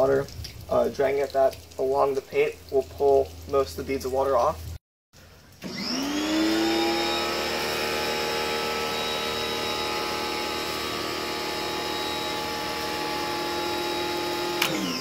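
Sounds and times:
water spraying on glass: 0:00.0 - 0:15.0
pressure washer whining: 0:05.6 - 0:15.0.

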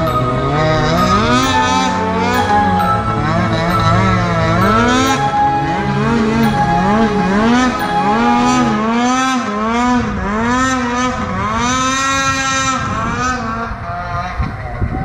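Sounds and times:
snowmobile engine revving: 0:00.0 - 0:15.0.

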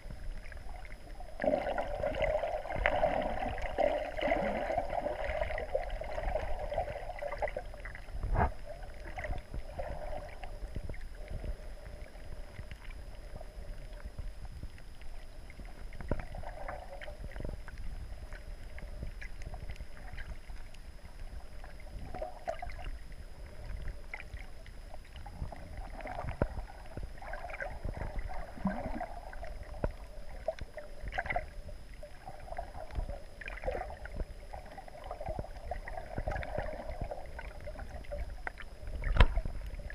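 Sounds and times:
underwater rumble: 0:00.0 - 0:39.9
sharp underwater clicks and knocks: 0:38.4 - 0:39.7.

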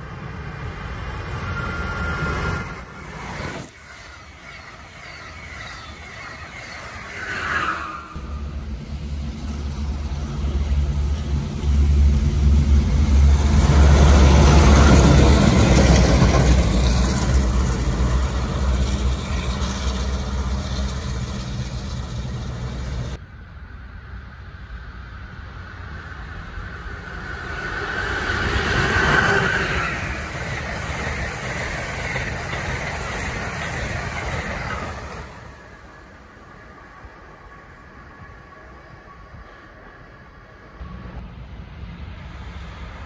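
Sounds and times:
diesel locomotives passing: 0:00.0 - 0:43.0.

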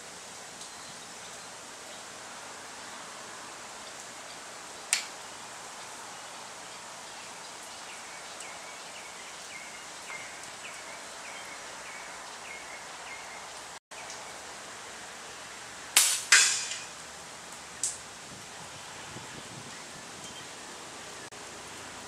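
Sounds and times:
outdoor background hiss: 0:00.0 - 0:22.0
sharp click: 0:04.9 - 0:05.1.

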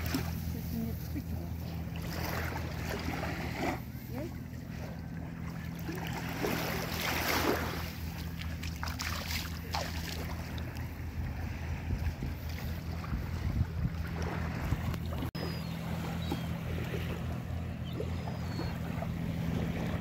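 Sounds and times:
small waves washing on sand: 0:05.8 - 0:17.3
wind rumble on microphone: 0:10.2 - 0:20.0.

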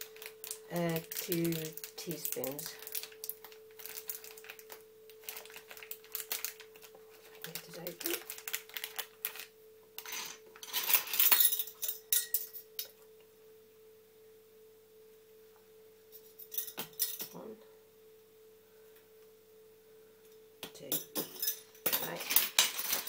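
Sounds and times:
spice packet rustling: 0:00.0 - 0:10.2
faint steady hum: 0:00.0 - 0:23.0.

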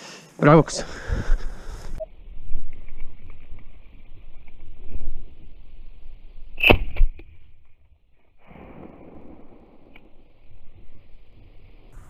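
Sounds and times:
shotgun shot: 0:08.4 - 0:10.2.

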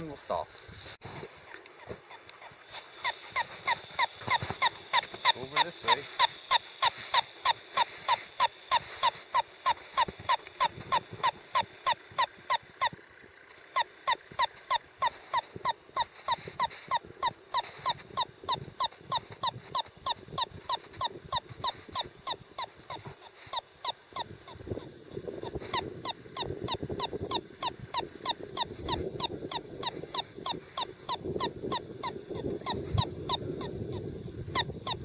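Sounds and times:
receiver beeping rapidly: 0:03.0 - 0:12.9.

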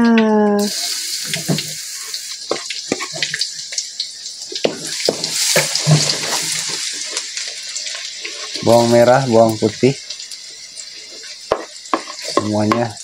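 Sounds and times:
garlic sizzling in oil: 0:00.6 - 0:13.0
wooden spatula scraping pan: 0:05.1 - 0:06.8.

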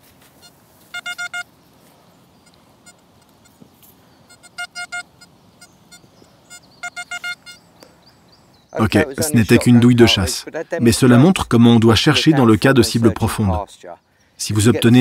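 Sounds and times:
metal detector beeping: 0:00.4 - 0:01.5, 0:04.3 - 0:07.6.

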